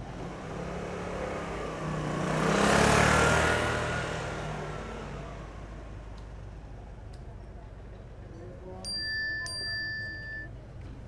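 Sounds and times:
vehicle driving past: 0:00.0 - 0:06.9.

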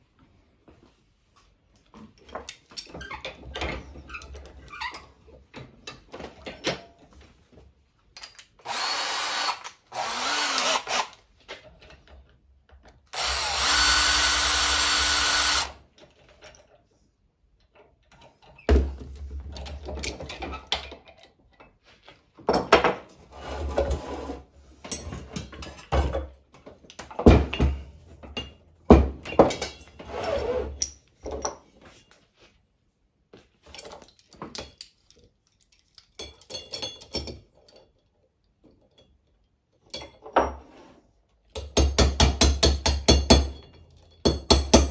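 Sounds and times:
metal tools clattering on workbench: 0:08.1 - 0:08.6, 0:17.7 - 0:23.1, 0:24.8 - 0:30.1, 0:30.7 - 0:32.2, 0:33.6 - 0:40.8
cordless drill running: 0:08.6 - 0:11.2, 0:13.1 - 0:15.8.

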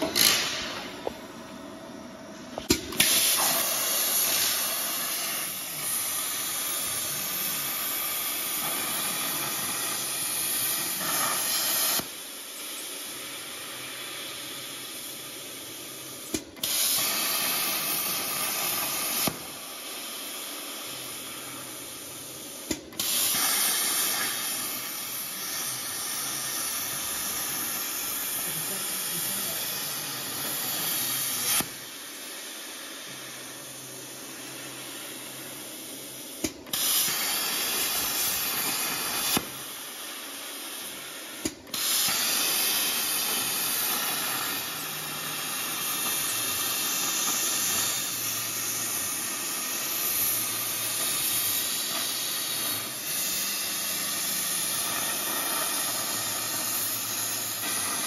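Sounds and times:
plasma cutter hissing: 0:00.0 - 0:01.1, 0:01.8 - 0:58.0
sharp pop: 0:00.0 - 0:01.2, 0:02.6 - 0:03.7, 0:22.6 - 0:23.6, 0:36.4 - 0:37.2.

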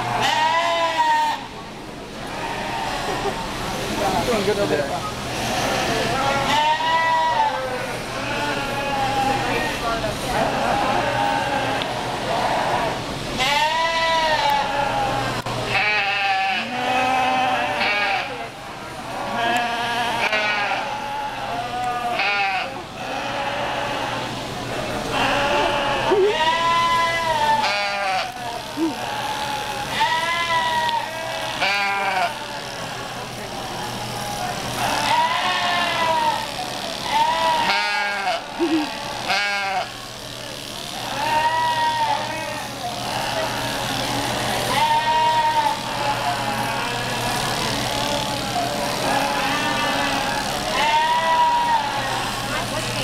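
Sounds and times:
lambs bleating: 0:00.1 - 0:01.4, 0:02.3 - 0:03.1, 0:05.4 - 0:09.3, 0:10.8 - 0:18.4, 0:19.2 - 0:24.2, 0:25.1 - 0:33.0, 0:34.8 - 0:40.0, 0:40.7 - 0:44.0, 0:44.6 - 0:52.3.

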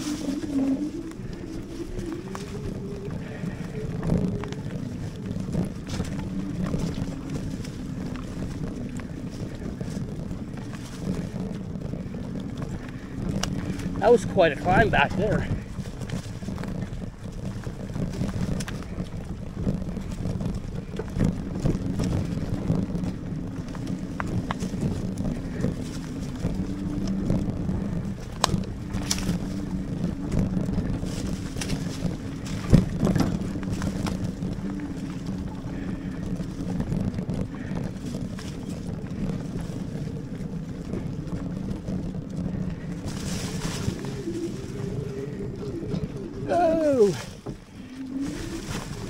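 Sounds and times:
bike rattling and knocking: 0:00.0 - 0:49.0
bike tyres rumbling on trail: 0:00.0 - 0:49.0
wind on microphone: 0:00.0 - 0:49.0.

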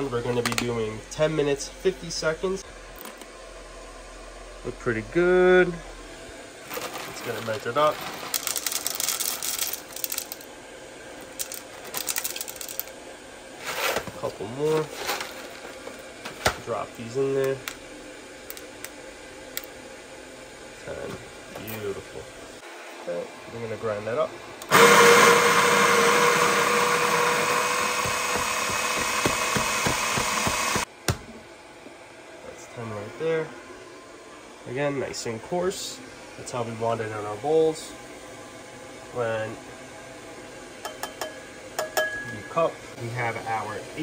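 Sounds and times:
coffee beans clattering into container: 0:06.7 - 0:10.5, 0:11.2 - 0:12.9
coffee grinder motor whine: 0:24.6 - 0:30.9.

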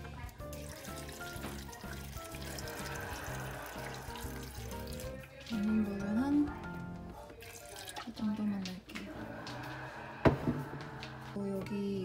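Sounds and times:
water pouring into a blender jar: 0:00.0 - 0:06.0, 0:07.4 - 0:08.3
background music: 0:00.0 - 0:12.0.

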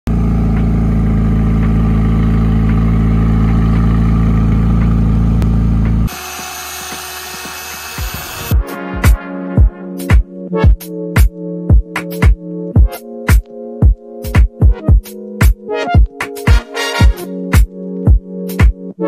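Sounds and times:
car engine idling: 0:00.1 - 0:06.1
electric polisher running: 0:00.1 - 0:08.6.

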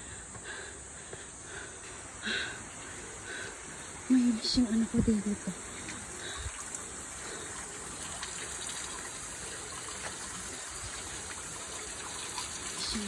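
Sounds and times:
water gushing into stone basin: 0:05.6 - 0:13.0.

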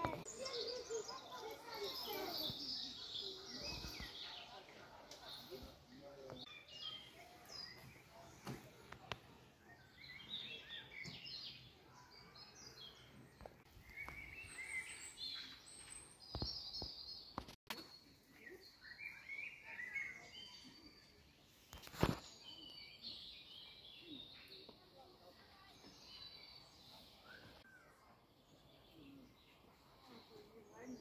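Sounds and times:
small birds chirping and singing: 0:00.0 - 0:31.0.

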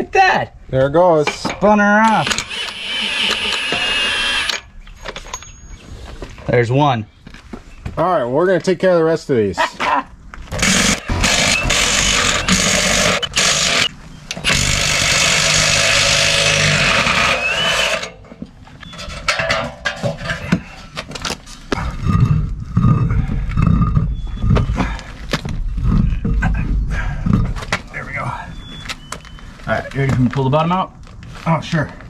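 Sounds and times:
impact wrench hammering: 0:10.6 - 0:18.2.

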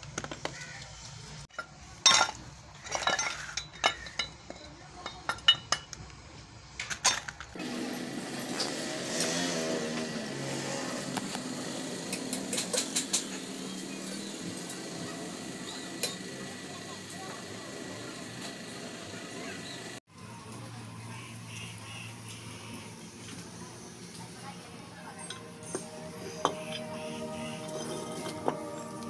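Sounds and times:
metal parts clanking together: 0:01.5 - 0:06.0
steady background din: 0:24.0 - 0:29.0.

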